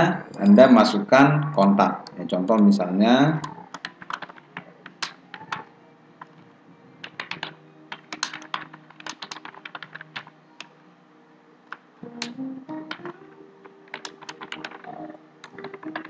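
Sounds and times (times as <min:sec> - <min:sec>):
keyboard keystroke clicks: 0:13.9 - 0:16.0.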